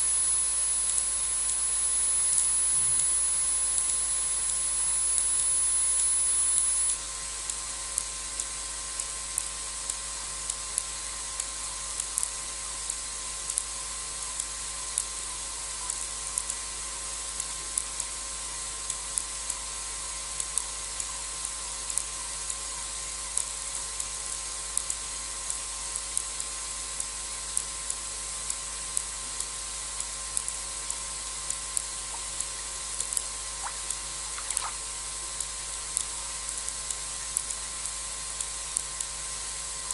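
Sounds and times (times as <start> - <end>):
microphone hiss: 0.0 - 7.0, 31.7 - 35.3
short sharp clicks: 33.6 - 34.8.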